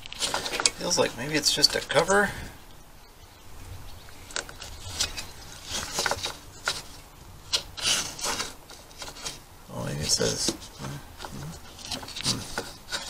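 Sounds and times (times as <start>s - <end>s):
fingers scraping and clicking cover: 4.3s - 9.4s, 10.2s - 13.0s.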